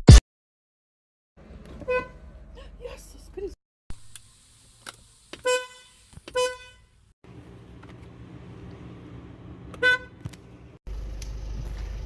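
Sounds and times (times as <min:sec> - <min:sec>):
car horn blasts: 0:01.8 - 0:02.3, 0:05.4 - 0:06.9, 0:09.8 - 0:10.2.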